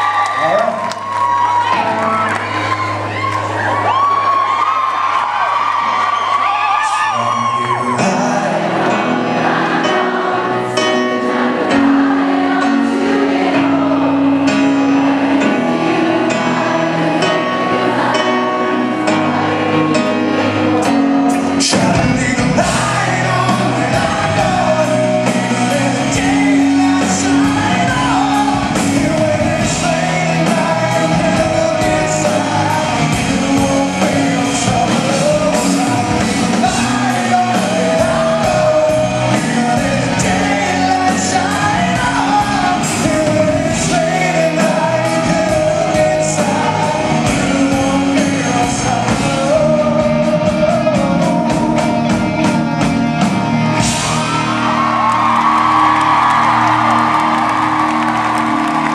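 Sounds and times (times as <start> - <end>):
live rock band: 0.0 - 58.9
man singing: 6.8 - 9.2, 20.8 - 52.9.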